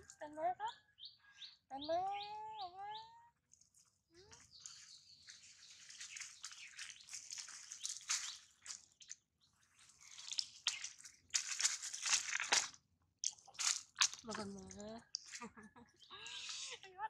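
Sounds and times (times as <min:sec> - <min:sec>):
dry leaves crackling and rustling: 0:04.6 - 0:09.2, 0:09.8 - 0:12.8, 0:13.4 - 0:14.4.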